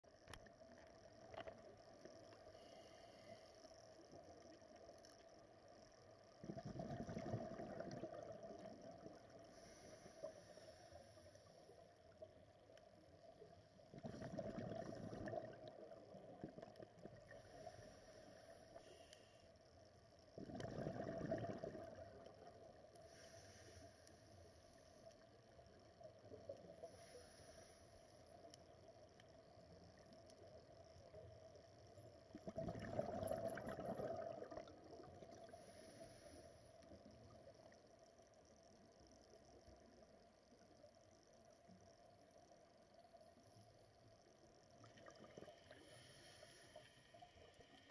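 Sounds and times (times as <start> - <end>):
faint underwater hiss: 0.1 - 47.9
regulator bubbles underwater: 4.0 - 10.5, 11.6 - 18.9, 20.0 - 23.3, 28.8 - 47.9.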